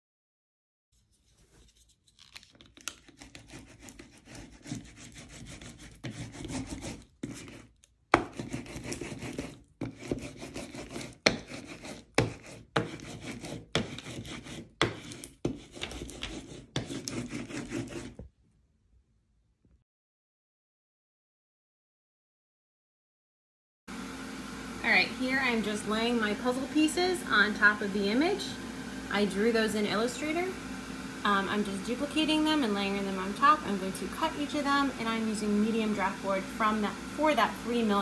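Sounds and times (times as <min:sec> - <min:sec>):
hand roller rubbing swish: 0:08.2 - 0:18.2.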